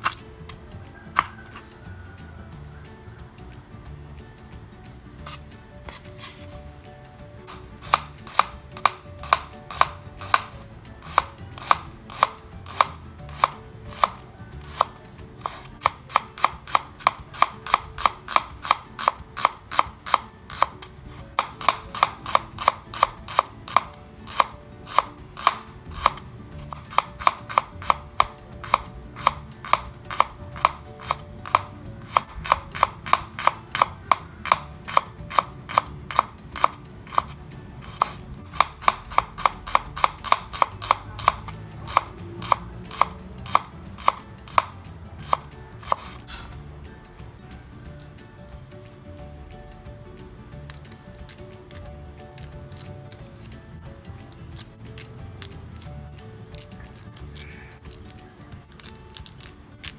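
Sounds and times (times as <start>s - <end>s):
knife chopping on wooden board: 0.0s - 1.7s, 7.5s - 46.5s.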